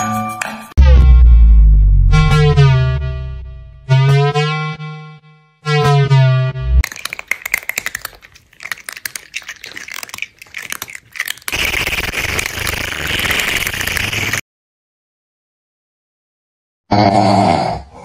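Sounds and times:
crunchy chewing: 6.8s - 14.4s
slurping through a straw: 6.8s - 14.4s.

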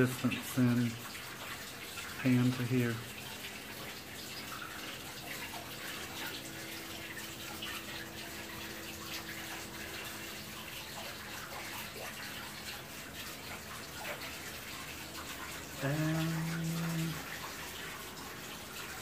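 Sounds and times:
running water trickling: 0.0s - 19.0s.

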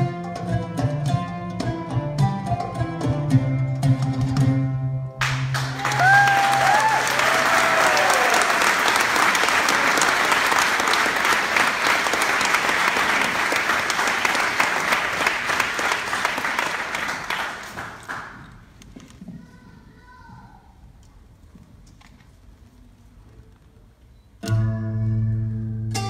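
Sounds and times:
audience applause: 5.2s - 18.6s
audience whoops: 5.6s - 10.3s.

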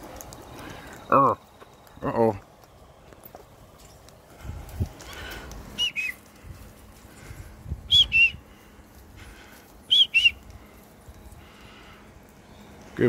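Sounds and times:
two-note whistle: 5.8s - 6.2s, 7.9s - 8.4s, 9.9s - 10.4s.

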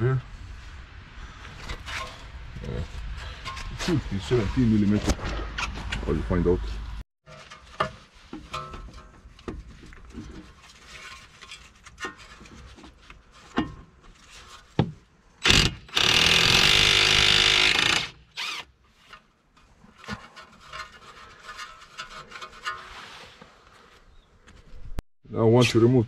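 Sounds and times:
cordless impact wrench running: 15.5s - 18.7s
tool handling clicks and scrapes: 18.4s - 23.9s.

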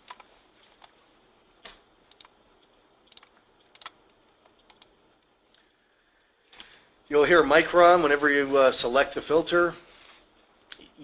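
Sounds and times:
faint computer keyboard clicks: 3.1s - 4.9s.

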